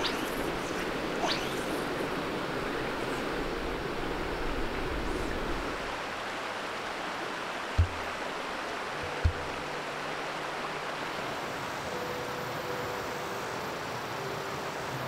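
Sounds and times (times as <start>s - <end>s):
river rushing over stones: 0.0s - 15.0s
dull low thumps: 7.8s - 8.2s, 9.2s - 9.6s.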